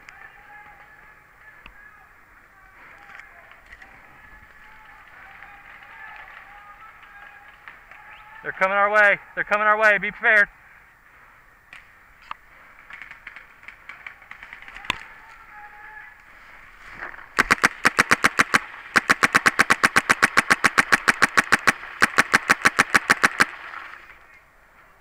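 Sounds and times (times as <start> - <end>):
paintball marker firing rapidly: 17.4 - 23.8.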